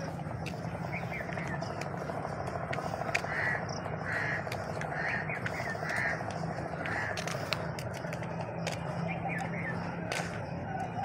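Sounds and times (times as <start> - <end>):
crow cawing: 0.0 - 7.8
outdoor background: 0.0 - 11.0.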